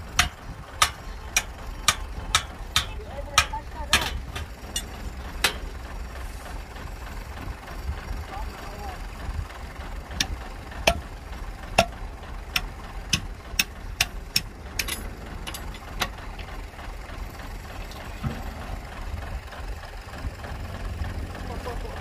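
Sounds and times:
diesel engine idling: 0:00.0 - 0:22.0
sharp knocks: 0:11.8 - 0:12.0.

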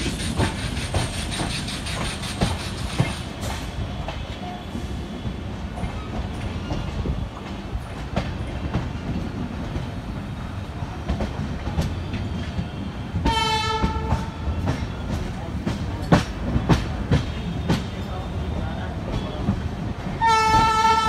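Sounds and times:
train wheels clacking over rail joints: 0:00.0 - 0:10.0, 0:11.0 - 0:21.0
train horn: 0:13.2 - 0:14.8, 0:20.2 - 0:21.0.

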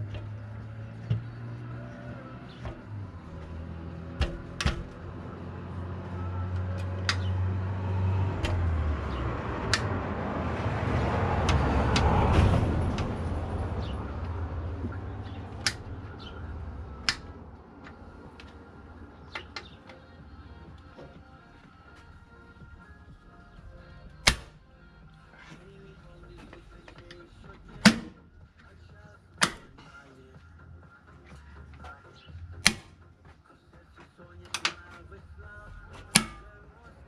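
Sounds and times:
vehicle passing: 0:00.0 - 0:37.0
metal latch clips clicking: 0:04.2 - 0:05.0, 0:06.8 - 0:07.4, 0:15.3 - 0:15.9, 0:17.0 - 0:18.6, 0:32.6 - 0:32.9, 0:34.5 - 0:34.9, 0:36.0 - 0:36.5.

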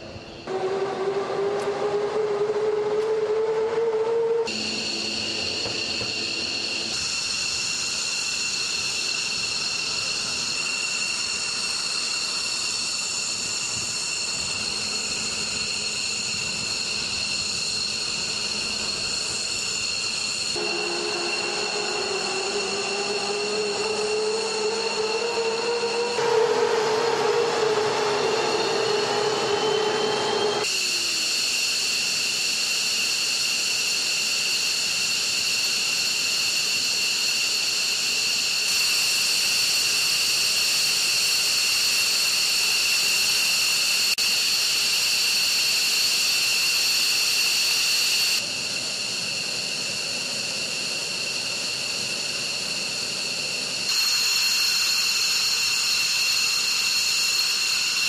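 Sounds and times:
jet engine turbine whine: 0:00.0 - 0:58.0.

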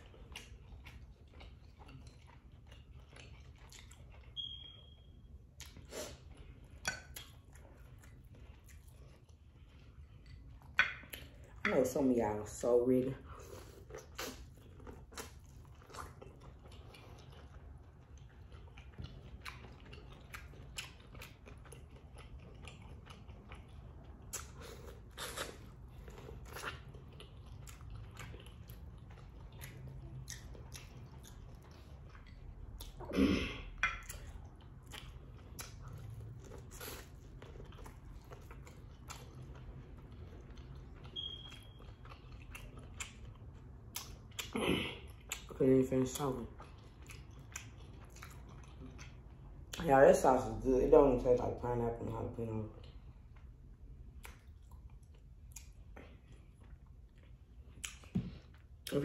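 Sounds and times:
chewing corn on the cob: 0:00.0 - 0:59.0.

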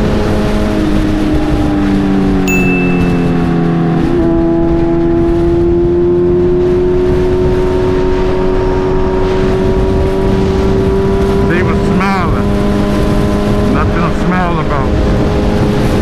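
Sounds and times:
road noise: 0:00.0 - 0:16.0
wind noise: 0:02.5 - 0:16.0
motorcycle engine cruising: 0:03.0 - 0:14.0.

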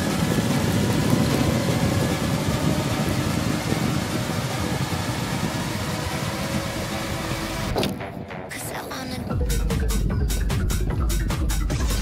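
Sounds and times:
ceiling fan hum: 0:00.0 - 0:07.8
wind rushing over microphone: 0:00.0 - 0:08.5.

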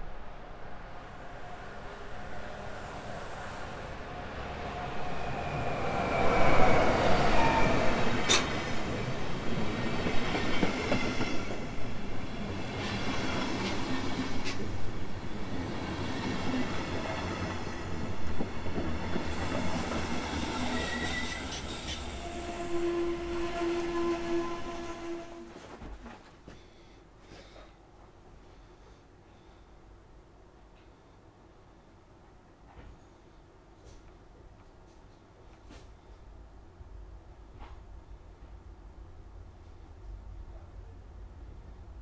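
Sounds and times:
train wheels rumbling on track: 0:00.9 - 0:26.3
train wheel squeal: 0:01.2 - 0:08.6, 0:19.3 - 0:25.6.

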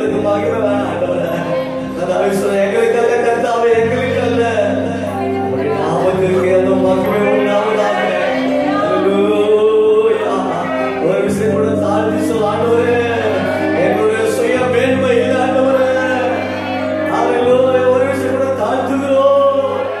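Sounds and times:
keyboard chords: 0:00.0 - 0:20.0
group singing worship song: 0:05.6 - 0:17.8.

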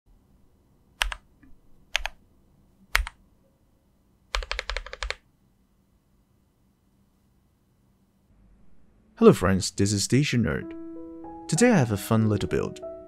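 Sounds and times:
mechanical keyboard keystrokes: 0:01.0 - 0:01.3, 0:01.9 - 0:02.2, 0:02.9 - 0:03.2, 0:04.3 - 0:05.2.

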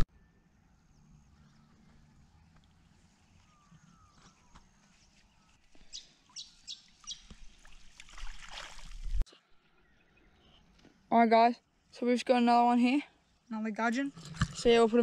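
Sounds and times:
bird chirping: 0:00.0 - 0:07.8, 0:09.5 - 0:11.9
water splashing off net: 0:07.3 - 0:09.2.

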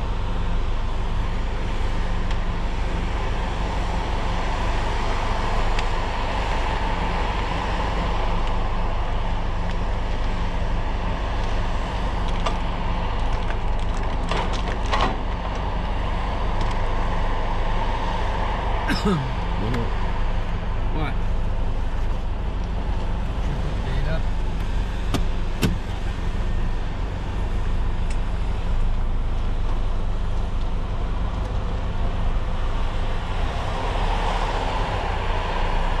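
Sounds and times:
diesel engine running: 0:00.0 - 0:36.0
sharp knocks and clicks: 0:25.1 - 0:25.8.

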